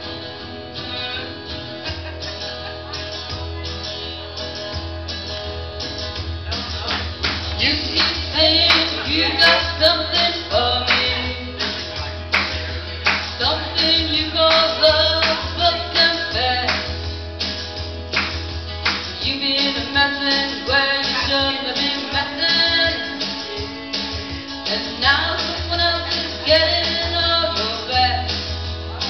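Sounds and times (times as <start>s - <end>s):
karaoke backing track: 0.0s - 29.0s
woman singing into a microphone: 7.6s - 11.8s, 13.4s - 17.0s, 19.2s - 28.6s.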